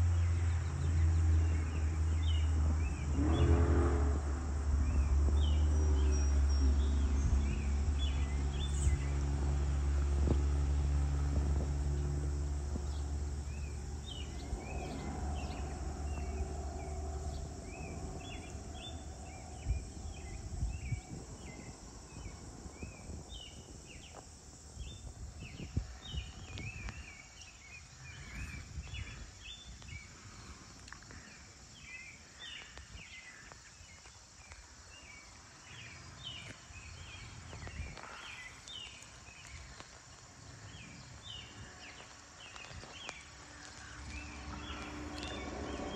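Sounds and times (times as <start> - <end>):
birds chirping: 0.0 - 3.9, 4.8 - 45.9
low droning hum: 0.0 - 24.1, 40.4 - 45.9
insects chirping: 0.0 - 45.9.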